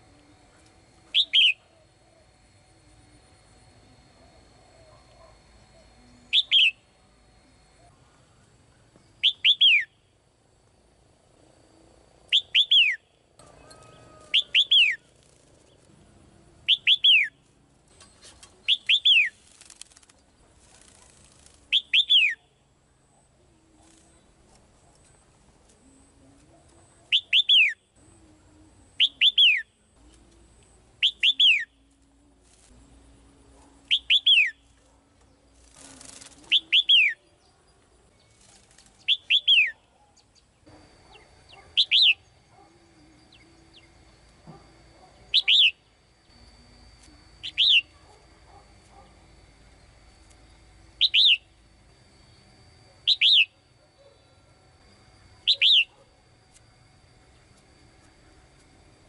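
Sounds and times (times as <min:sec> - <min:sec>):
bird calling sharp downward notes: 0:01.1 - 0:02.3, 0:05.8 - 0:06.9, 0:09.2 - 0:10.0, 0:12.3 - 0:15.1, 0:16.6 - 0:17.4, 0:36.0 - 0:37.3, 0:41.1 - 0:43.9, 0:45.2 - 0:45.8, 0:47.4 - 0:48.0, 0:51.0 - 0:51.6, 0:53.0 - 0:53.6, 0:55.4 - 0:56.0
wings flapping: 0:18.1 - 0:22.0, 0:35.5 - 0:37.0, 0:38.4 - 0:39.4.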